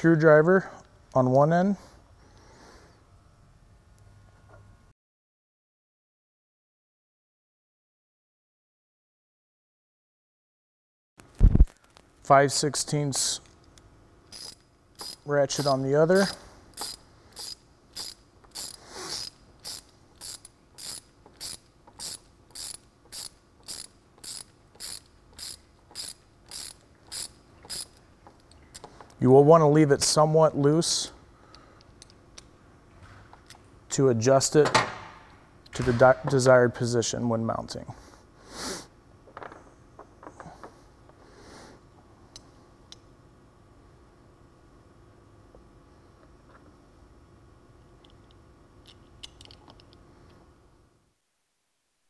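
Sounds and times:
ratchet wrench clicking: 14.2s - 29.1s.

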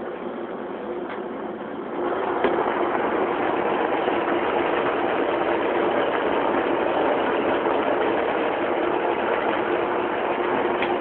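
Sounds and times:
large pot boiling vigorously: 0.0s - 11.0s.

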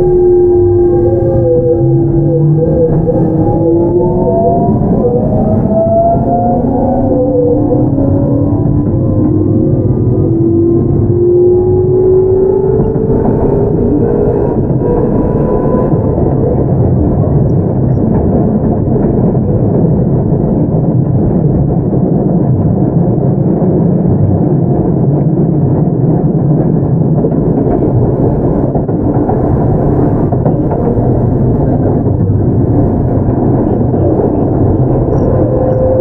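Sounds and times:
train wheels rumbling on rail: 0.0s - 36.0s.

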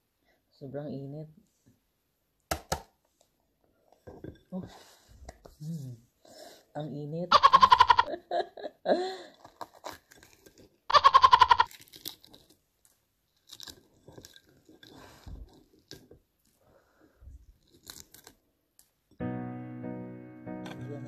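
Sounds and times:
eggshell cracking and peeling: 9.4s - 16.6s, 17.5s - 19.0s.

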